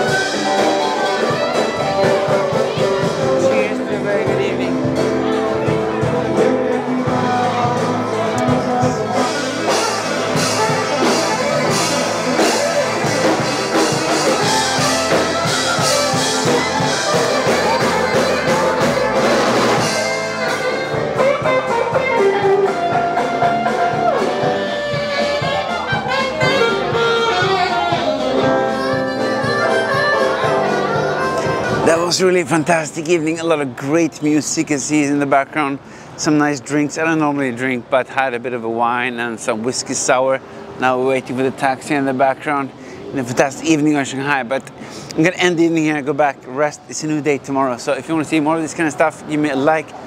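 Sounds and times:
sliding harmonica lead: 0.0s - 32.3s
live blues band playing: 0.0s - 37.9s, 40.1s - 46.9s.

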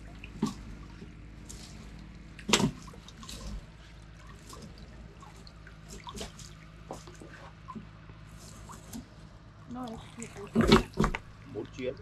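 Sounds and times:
water dripping into lake: 0.0s - 8.8s
water splash: 0.0s - 9.2s, 9.8s - 12.0s.

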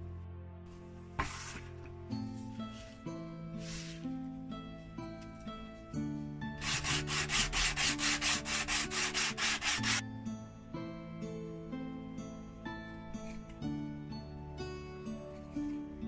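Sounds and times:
soft background music: 0.0s - 16.0s
sandpaper rubbing on wood: 6.6s - 10.0s.

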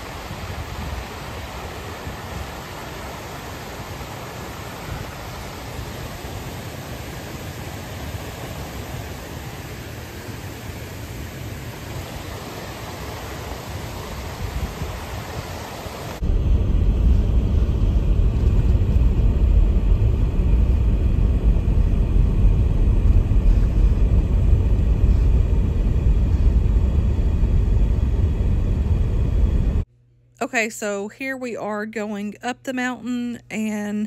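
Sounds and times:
waterfall rushing: 0.0s - 16.2s
car driving rumble inside cabin: 16.2s - 29.9s.

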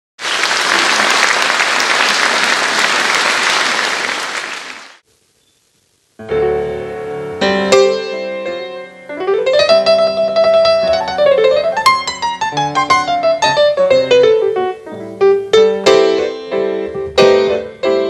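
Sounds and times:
audience applauding: 0.2s - 5.0s
piano chords: 6.2s - 18.0s.

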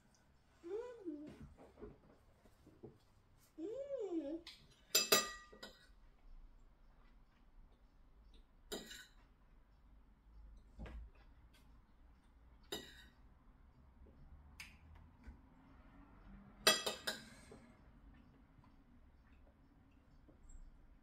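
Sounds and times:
cutlery clinking on ceramic plates: 4.8s - 6.0s, 8.7s - 9.2s, 12.7s - 13.1s, 16.6s - 17.4s.

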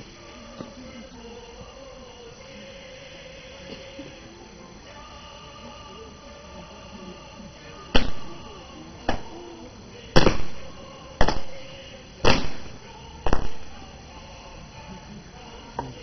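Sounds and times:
sharp loud foot stamps: 8.0s - 8.5s, 10.2s - 13.8s.

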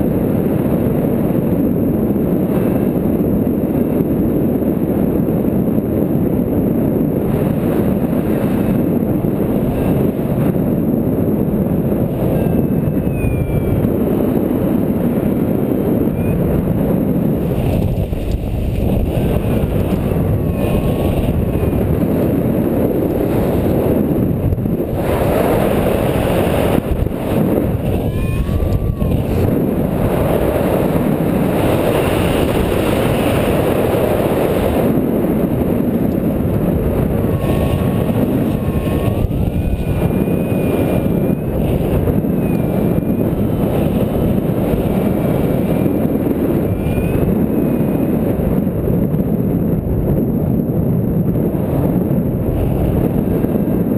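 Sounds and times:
airflow rushing over microphone: 0.0s - 53.9s
faint wavering whistle: 12.1s - 14.4s, 16.0s - 16.7s, 19.1s - 22.9s, 27.2s - 30.4s, 36.9s - 43.6s, 46.5s - 48.2s.

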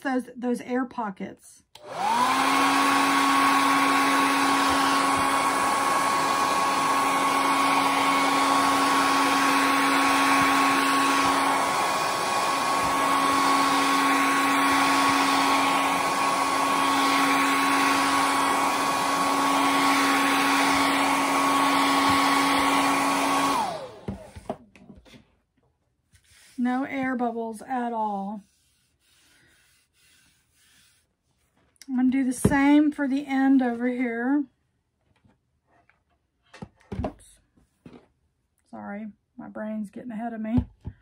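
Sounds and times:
hair dryer running: 1.7s - 24.6s.

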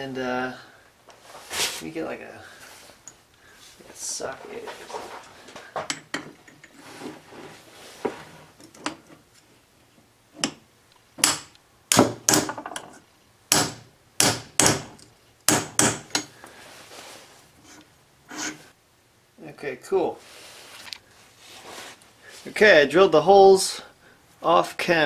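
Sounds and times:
hammer striking metal: 13.5s - 14.9s.

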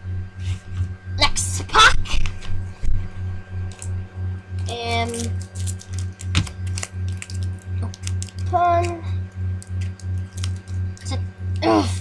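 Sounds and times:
low pulsing hum: 0.0s - 12.0s
foil wrapper crackling: 3.7s - 4.0s, 4.6s - 11.1s.

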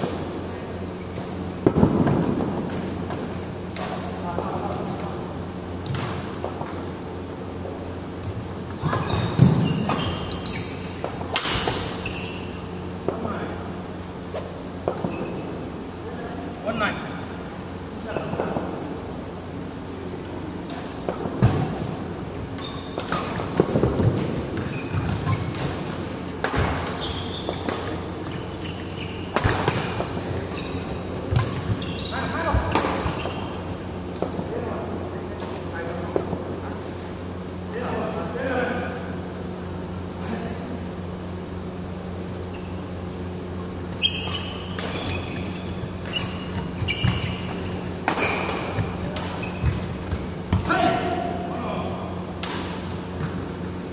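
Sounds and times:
steady low hum: 0.0s - 53.9s
shoes squeaking on court: 8.3s - 13.0s, 13.9s - 15.8s, 20.6s - 34.4s, 41.8s - 51.0s, 52.6s - 53.9s
rackets hitting shuttlecock: 20.6s - 28.6s, 29.2s - 30.4s, 44.2s - 51.0s, 52.4s - 53.4s.

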